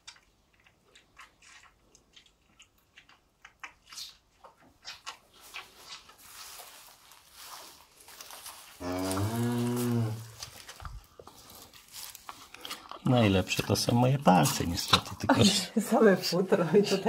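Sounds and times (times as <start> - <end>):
rustling: 4.4 - 13.1
cow mooing low: 8.8 - 10.4.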